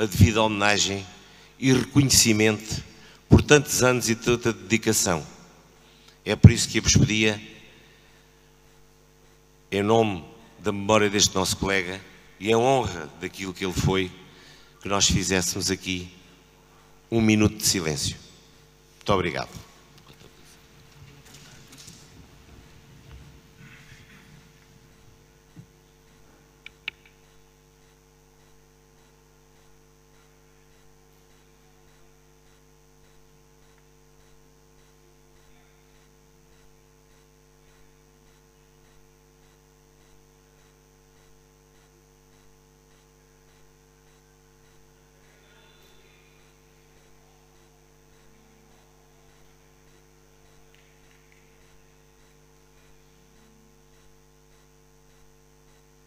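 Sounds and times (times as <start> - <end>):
electrical mains hum: 0.0 - 56.0
sharp clicks: 26.6 - 28.5.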